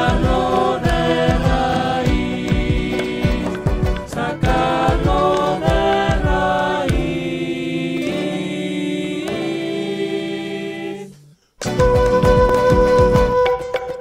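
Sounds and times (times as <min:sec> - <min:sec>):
drum strokes: 0:00.0 - 0:07.3, 0:11.6 - 0:14.0
voices singing in harmony: 0:00.0 - 0:11.4
acoustic guitars: 0:00.0 - 0:14.0.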